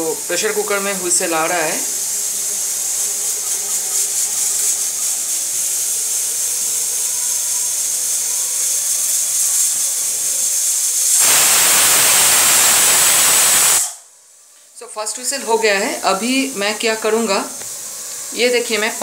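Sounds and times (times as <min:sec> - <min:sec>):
pressure cooker hissing: 0:00.0 - 0:14.2, 0:15.1 - 0:19.0
pressure cooker whistle: 0:11.0 - 0:14.1.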